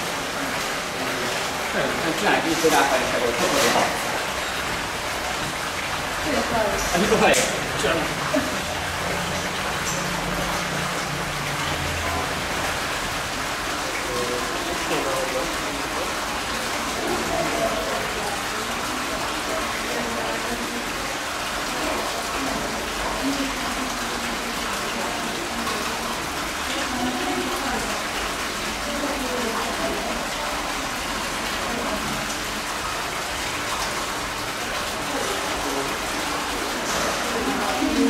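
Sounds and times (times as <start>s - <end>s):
rushing water hiss: 0.0s - 38.0s
faint voices murmuring: 13.7s - 32.8s, 34.6s - 38.0s.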